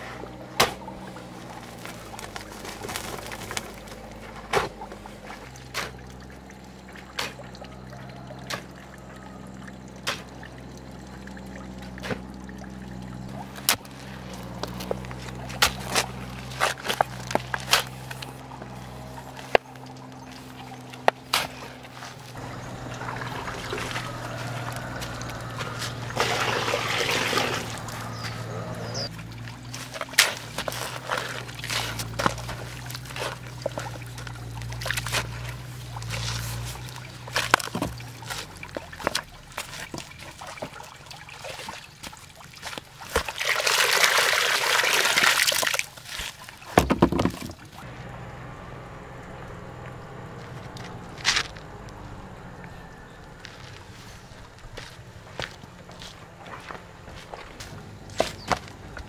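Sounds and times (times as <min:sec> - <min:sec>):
water pouring and splashing: 0:00.0 - 0:47.9
shovel scraping sand and cement: 0:13.5 - 0:19.6, 0:20.3 - 0:39.9.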